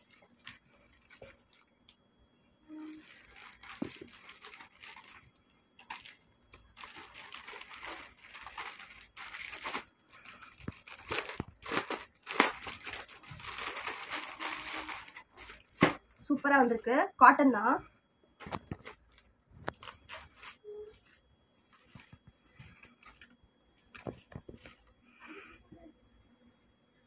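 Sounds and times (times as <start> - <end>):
plastic packaging crinkling: 0.0 - 1.9, 2.7 - 16.0, 18.4 - 24.9
scissors cutting plastic: 5.8 - 16.0.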